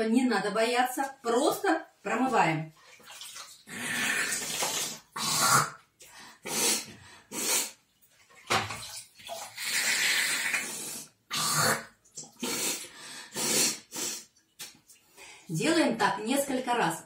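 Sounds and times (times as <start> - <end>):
water splashing: 2.8 - 5.2, 7.9 - 10.7
person sniffing and snorting: 3.7 - 5.8, 6.4 - 7.8, 9.6 - 14.3.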